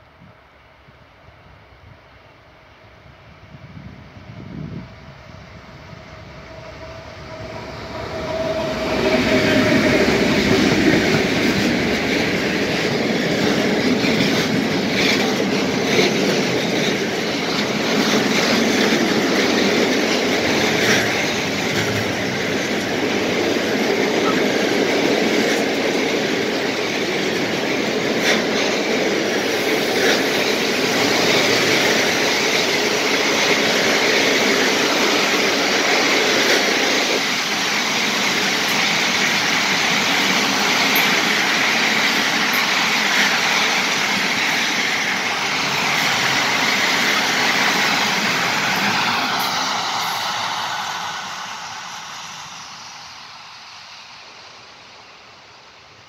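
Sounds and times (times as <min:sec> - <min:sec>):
diesel locomotive engine drone: 0:00.0 - 0:56.0
freight train rumbling: 0:00.0 - 0:56.0
wheels clicking over rail joints: 0:08.1 - 0:50.4.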